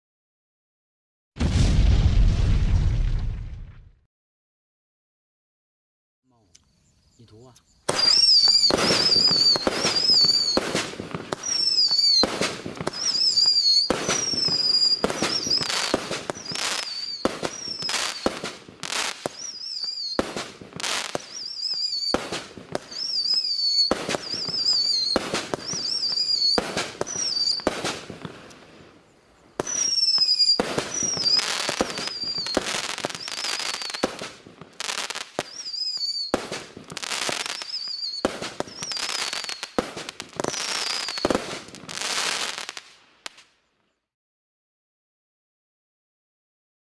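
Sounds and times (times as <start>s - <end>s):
fireworks bangs with whistles: 7.8s - 43.4s.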